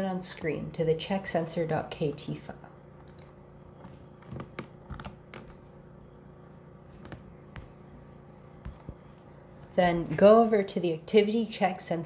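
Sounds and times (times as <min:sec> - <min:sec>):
low steady hum: 0:00.0 - 0:12.0
computer keyboard clicks: 0:03.0 - 0:03.3.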